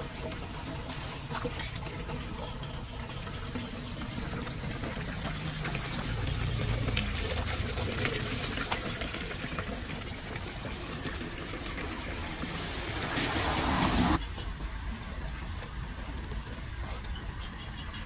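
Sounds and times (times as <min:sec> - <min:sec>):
water trickling into drain: 0:00.0 - 0:18.0.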